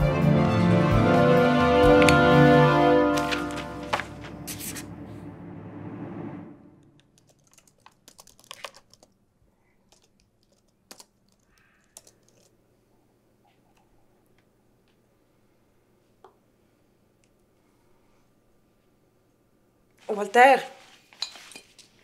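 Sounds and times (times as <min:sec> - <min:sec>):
background music: 0:00.0 - 0:06.8
keyboard typing clicks: 0:07.1 - 0:09.2, 0:09.9 - 0:12.5.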